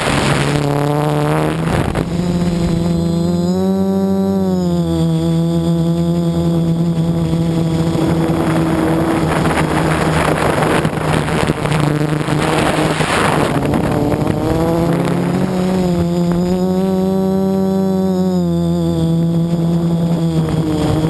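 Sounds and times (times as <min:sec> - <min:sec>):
wind rush: 0:00.0 - 0:03.4, 0:06.6 - 0:17.4
drone motors buzzing whine: 0:00.0 - 0:21.0.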